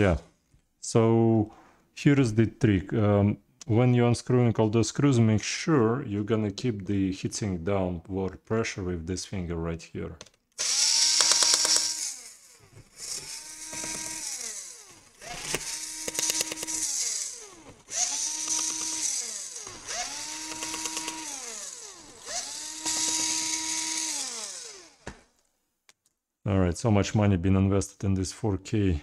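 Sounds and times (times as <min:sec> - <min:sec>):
electric screwdriver whining: 0:10.6 - 0:25.3.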